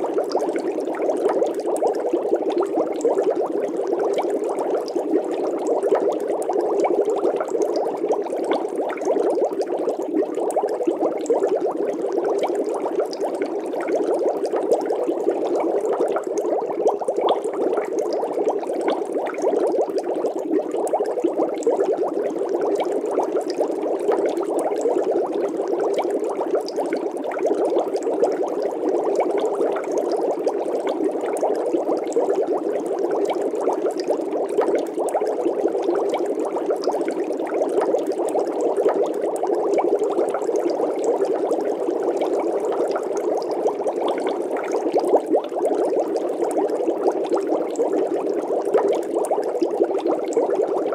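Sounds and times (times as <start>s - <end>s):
water bubbling and crackling: 0.0s - 50.9s.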